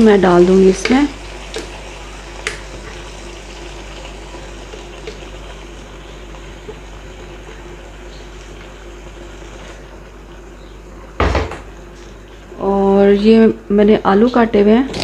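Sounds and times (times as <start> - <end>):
chicken sizzling in oil: 0.0 - 10.6.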